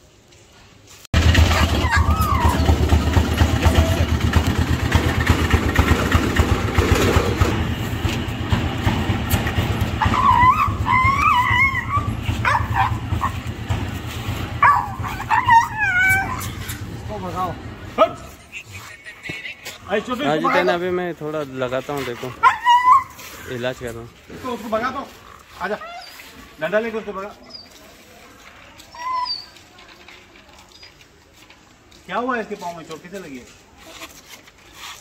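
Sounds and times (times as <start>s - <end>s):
loud low rumble: 1.2s - 15.4s
dog whining: 1.4s - 4.2s, 9.8s - 13.5s, 14.6s - 16.9s, 22.4s - 23.5s, 25.6s - 26.4s, 28.8s - 29.8s.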